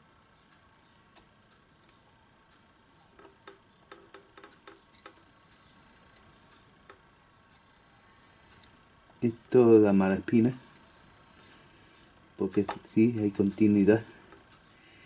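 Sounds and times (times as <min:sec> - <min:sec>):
multimeter continuity beeps: 0:04.6 - 0:06.6, 0:07.5 - 0:08.8, 0:10.5 - 0:11.6.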